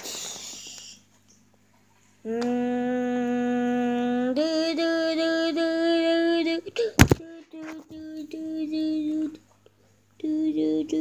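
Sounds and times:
person humming: 2.2 - 9.4, 10.2 - 11.0.

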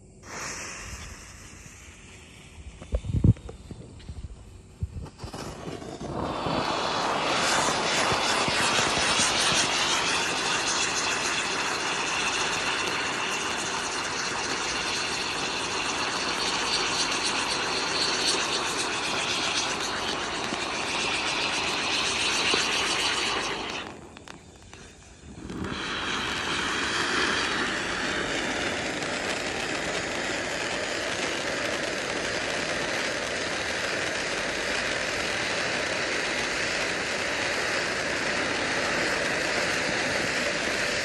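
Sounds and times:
firework fountain hissing: 0.0 - 41.0
high whistling tone: 5.2 - 29.6.

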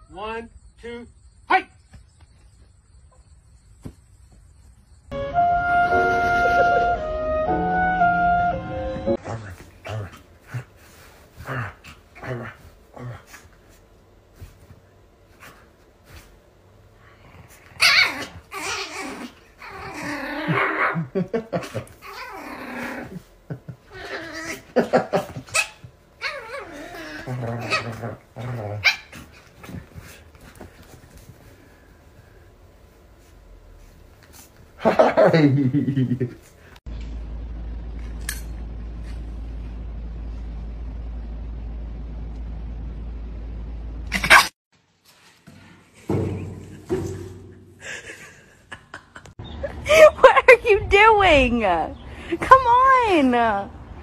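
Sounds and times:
steady low hum: 0.1 - 44.5
puppy growling and yapping: 17.1 - 30.5, 44.1 - 44.6.

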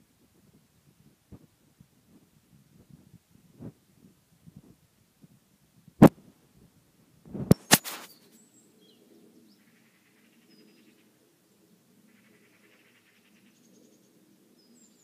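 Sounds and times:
faint bird chirps: 7.6 - 15.0.

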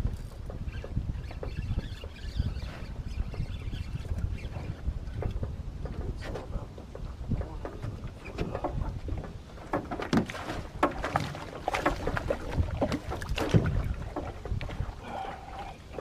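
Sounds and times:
knocks and clunks in a boat: 0.0 - 16.0
water splashing: 9.6 - 16.0.

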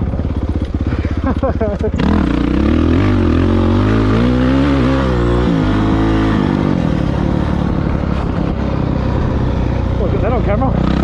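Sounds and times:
dirt bike engine running: 0.0 - 11.0.

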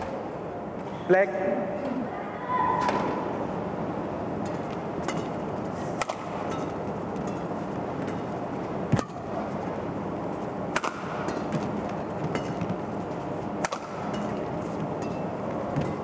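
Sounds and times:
arena crowd hum: 0.0 - 16.0
racket striking shuttlecock: 4.4 - 9.4, 10.7 - 16.0.

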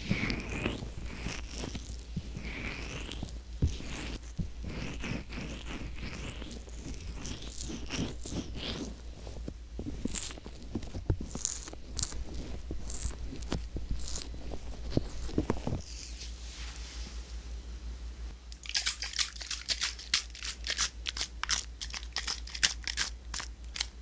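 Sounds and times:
fingertips rubbing on microphone: 0.0 - 16.0.

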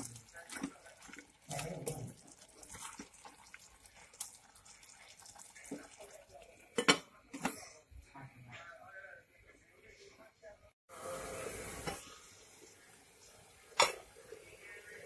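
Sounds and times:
spoon stirring thick curry: 0.0 - 7.0.

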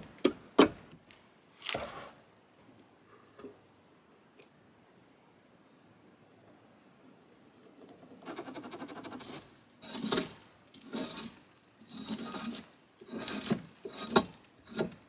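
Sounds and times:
drawknife scraping bark off log: 12.0 - 15.0.

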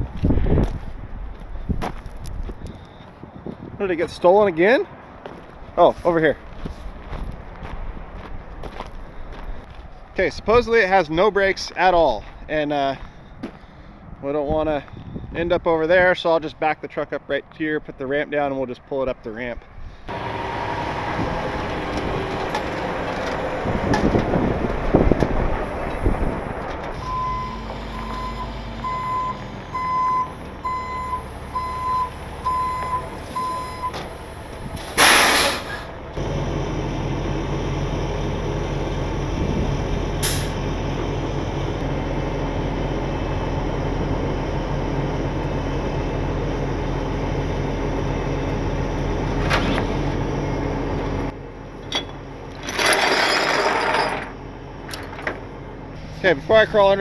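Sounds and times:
truck engine running: 20.1 - 57.0
reverse alarm beeping: 27.0 - 34.0
air brakes hissing: 33.2 - 36.0, 40.2 - 40.6.

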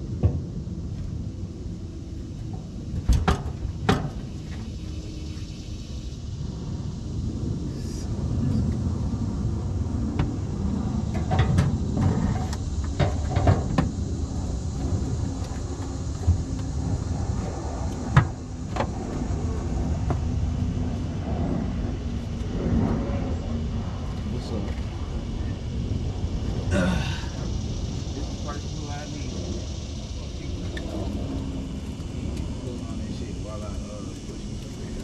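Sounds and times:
low rumbling: 0.0 - 35.0.

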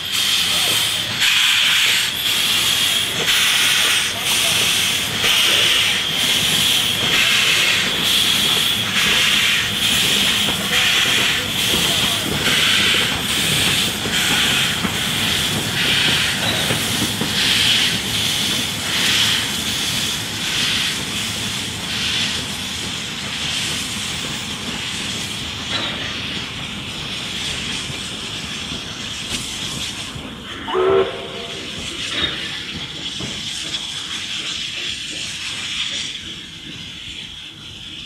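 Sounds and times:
hiss of steam: 0.0 - 38.0
steam locomotive chuffing: 0.0 - 38.0
steam whistle toot: 30.7 - 31.7.

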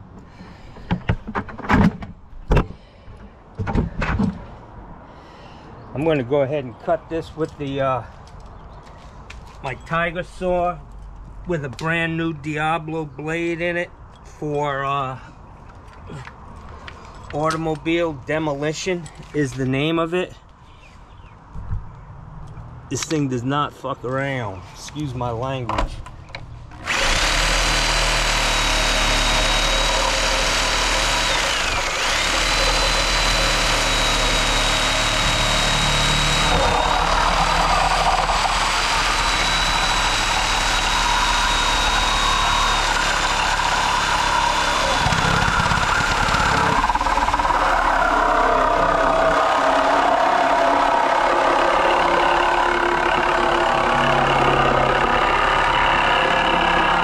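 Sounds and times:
reciprocating saw cutting steel: 26.8 - 57.0.

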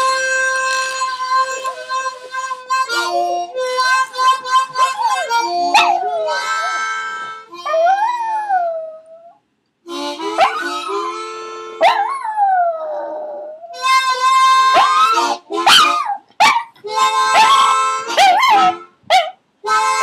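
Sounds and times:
held instrument chords: 0.0 - 8.0, 9.9 - 11.9, 13.8 - 16.0, 16.8 - 19.0, 19.6 - 20.0
dog howling: 4.8 - 7.0.

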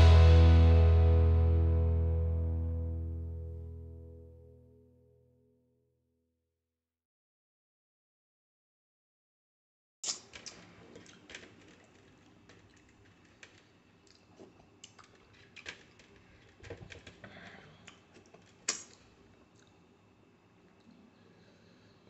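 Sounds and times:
wet mouth and finger smacks: 18.6 - 19.0.

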